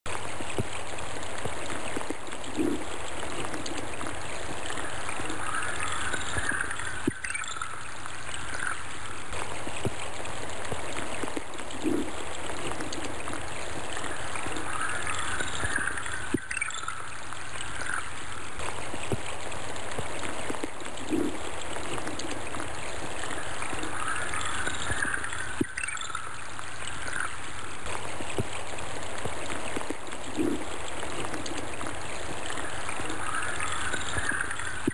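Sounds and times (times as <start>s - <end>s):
stream of water babbling: 0.1s - 34.9s.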